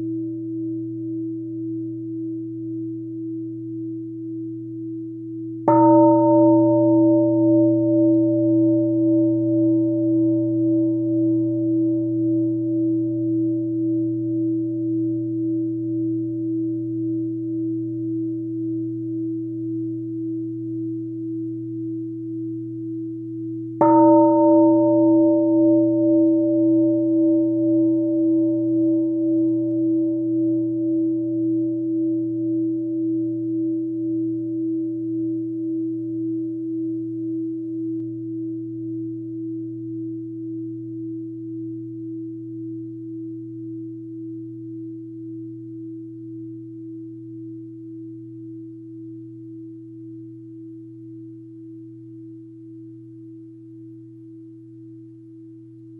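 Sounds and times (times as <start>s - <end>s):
bowl bell struck: 5.6s - 16.1s, 23.8s - 34.9s.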